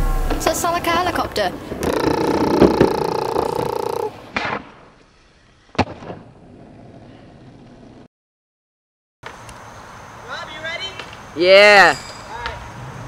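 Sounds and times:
pop music chord: 0:00.0 - 0:00.9
faint outdoor hiss: 0:00.0 - 0:05.7, 0:09.3 - 0:13.0
skateboard on asphalt: 0:04.4 - 0:08.0.

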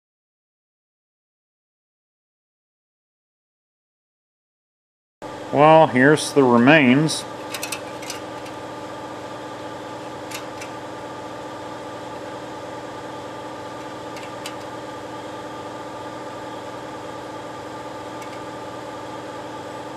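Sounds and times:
steady machine hum: 0:05.2 - 0:19.9
faint clicks of can handled: 0:18.2 - 0:18.4.

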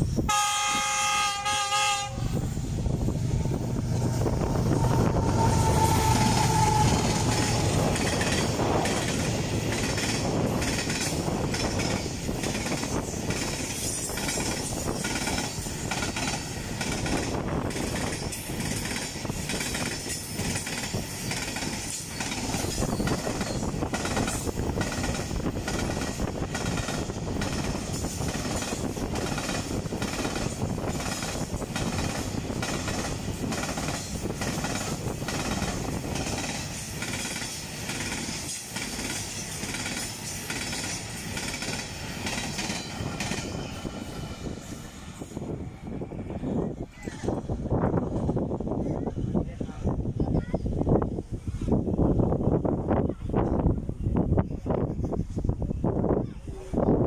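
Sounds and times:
locomotive rumbling past: 0:00.0 - 0:50.0
locomotive horn: 0:00.3 - 0:02.5, 0:04.7 - 0:07.7.

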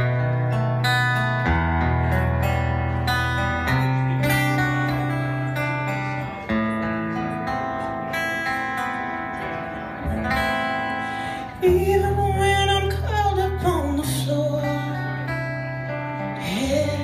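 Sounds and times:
acoustic guitar strumming: 0:00.0 - 0:17.0
live band playing: 0:00.0 - 0:17.0.

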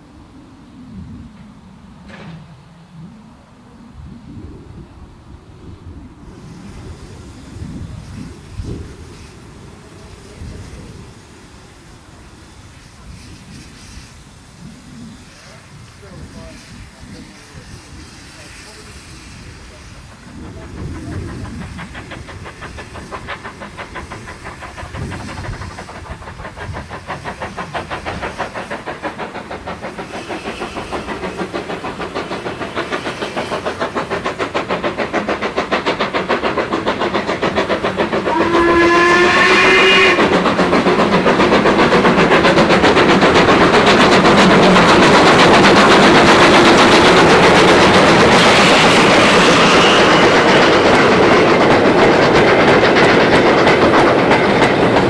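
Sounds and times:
steam locomotive exhaust beats: 0:03.9 - 0:55.0
wheels clattering on rails: 0:15.4 - 0:55.0
steam whistle blast: 0:38.3 - 0:40.3.

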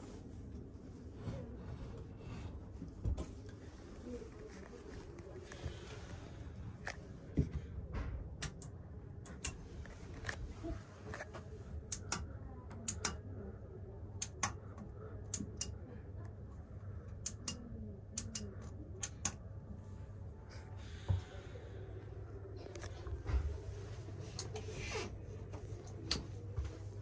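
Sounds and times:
low steady hum: 0:00.0 - 0:27.0
push-buttons clicking: 0:11.9 - 0:13.2, 0:17.2 - 0:19.4.

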